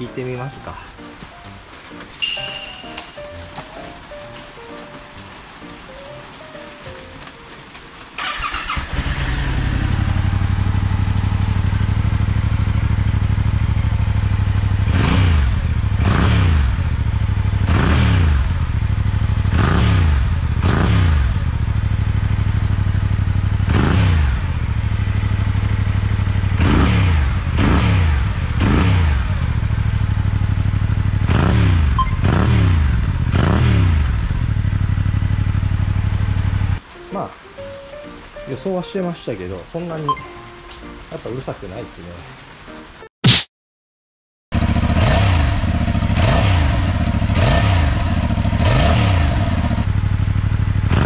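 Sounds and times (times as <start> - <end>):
motorcycle engine starting: 8.0 - 36.8, 44.5 - 51.0
motorcycle engine idling and revving: 8.1 - 36.8, 44.5 - 51.0.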